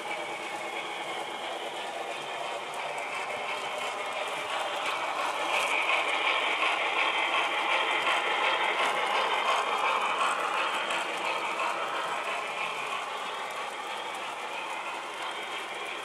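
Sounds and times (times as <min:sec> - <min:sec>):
model trains rattling on track: 0:00.0 - 0:16.0.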